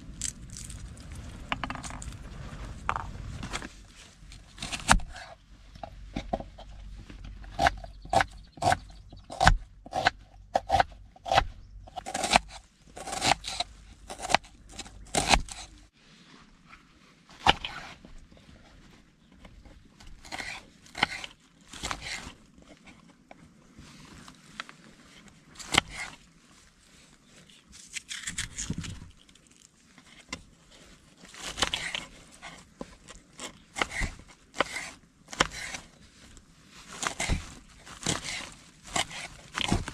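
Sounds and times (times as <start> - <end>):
crunch of vegetables being cut: 7.4 - 15.8, 27.7 - 29.7.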